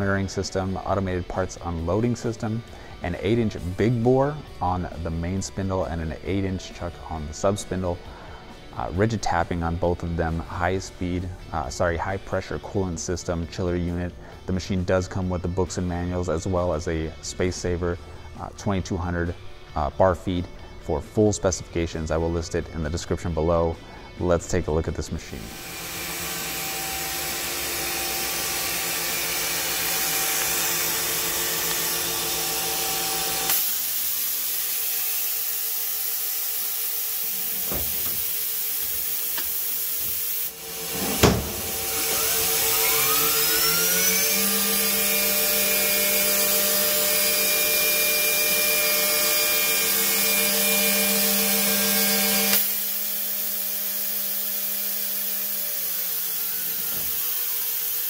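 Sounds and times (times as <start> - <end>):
machine hum and hiss: 25.4 - 58.0
spindle whine: 36.0 - 49.2
sharp clunk: 41.0 - 41.7.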